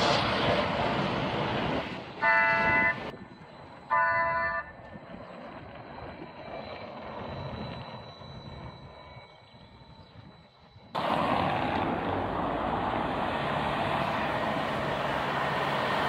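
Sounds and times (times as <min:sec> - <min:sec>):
bus passing: 0:00.0 - 0:08.7, 0:10.9 - 0:16.0
faint high whine: 0:02.0 - 0:11.0
bus horn toots: 0:02.2 - 0:03.1, 0:03.9 - 0:04.7.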